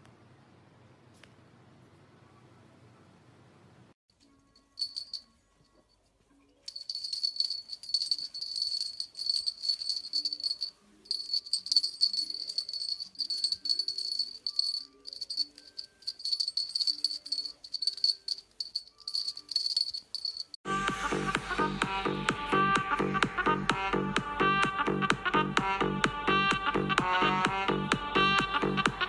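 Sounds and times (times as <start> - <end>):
soft music: 4.1 - 29.0
rattle shaken: 4.6 - 6.0, 6.6 - 20.6.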